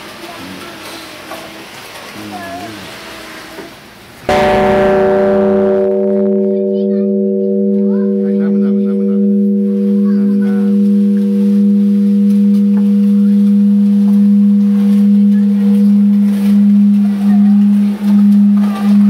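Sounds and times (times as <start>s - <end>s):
large temple bell ringing: 4.3s - 19.0s.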